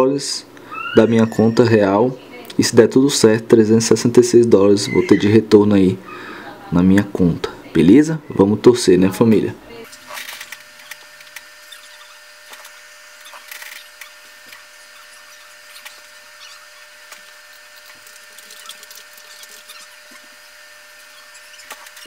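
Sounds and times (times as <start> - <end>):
small ticks: 10.5 - 20.2.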